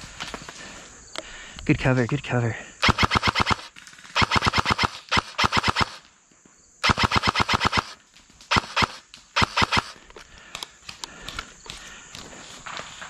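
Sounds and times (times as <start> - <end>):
airsoft rifle full-auto bursts: 2.8 - 6.0, 6.8 - 10.0.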